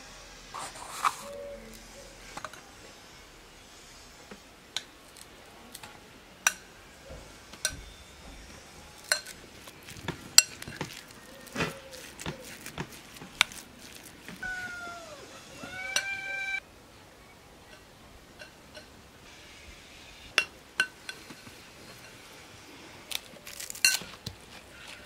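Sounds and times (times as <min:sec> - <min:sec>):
short falling animal call: 0:14.4 - 0:16.6.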